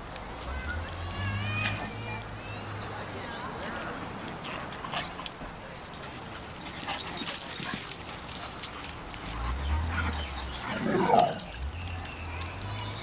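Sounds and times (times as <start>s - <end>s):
paws scuffing on dirt: 3.9s - 13.0s
dog sounds: 4.3s - 13.0s.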